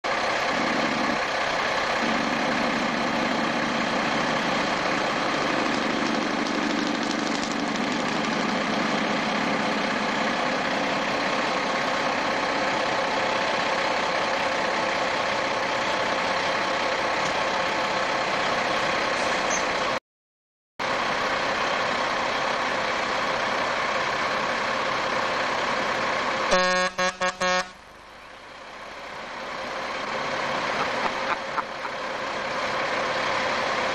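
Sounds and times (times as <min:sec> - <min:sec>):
truck diesel engine running: 0:00.0 - 0:20.0, 0:20.8 - 0:33.9
truck horn toots: 0:26.5 - 0:27.8.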